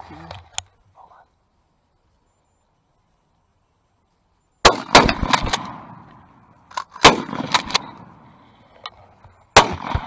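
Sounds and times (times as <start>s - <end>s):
shotgun blasts: 4.6s - 6.2s, 7.0s - 8.3s, 9.5s - 10.0s.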